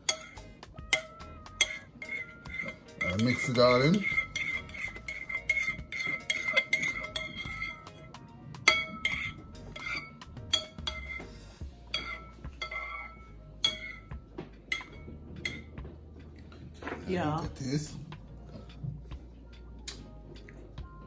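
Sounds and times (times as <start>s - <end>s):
metal spoon clinking in bowl: 0.0s - 11.2s, 11.9s - 15.8s.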